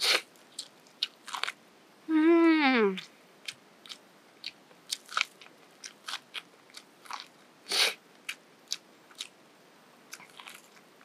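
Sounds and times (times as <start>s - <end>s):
person chewing crunchy food: 0.0s - 1.6s, 3.4s - 9.4s, 10.1s - 11.0s.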